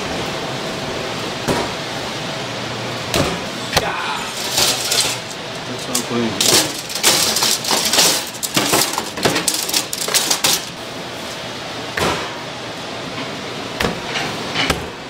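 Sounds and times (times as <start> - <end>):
utensils and dishes clattering: 3.9 - 10.8, 14.0 - 14.9.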